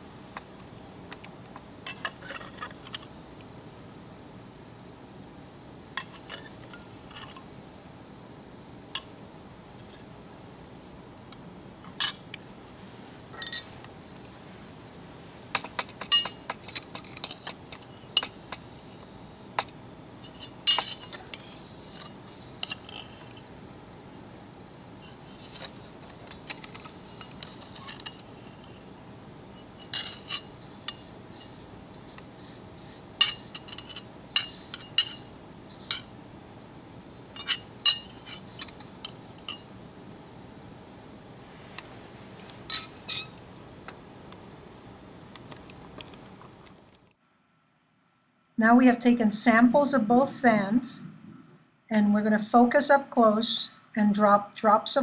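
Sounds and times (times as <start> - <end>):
metal spatula clinking on glass dish: 15.5 - 18.6, 20.3 - 23.2, 29.8 - 31.0, 33.2 - 36.1, 37.4 - 39.7, 42.7 - 43.4.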